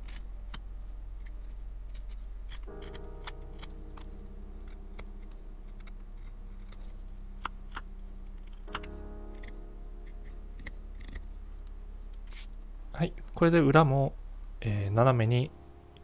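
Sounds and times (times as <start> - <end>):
knife shaving wood: 0.0 - 12.5.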